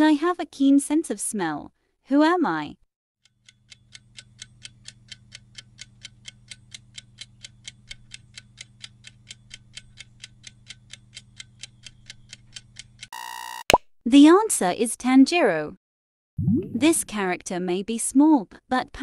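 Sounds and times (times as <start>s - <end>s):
clock ticking: 3.2s - 13.1s.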